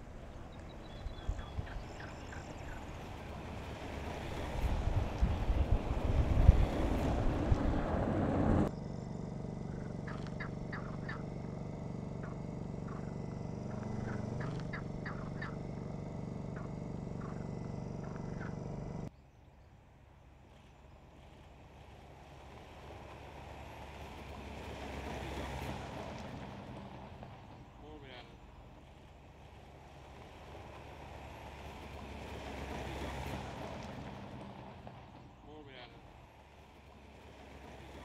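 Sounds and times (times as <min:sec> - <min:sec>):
low engine drone: 0:00.0 - 0:38.0
bird chirps: 0:00.4 - 0:03.1, 0:09.7 - 0:11.4, 0:12.2 - 0:15.9, 0:16.5 - 0:19.8.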